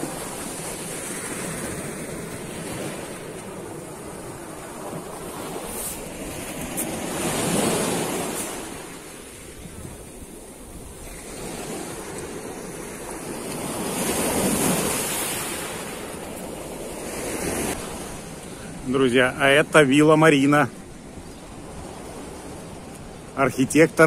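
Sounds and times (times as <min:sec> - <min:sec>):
wind rumbling on microphone: 0:00.0 - 0:18.5
surf washing on shore: 0:00.0 - 0:24.0.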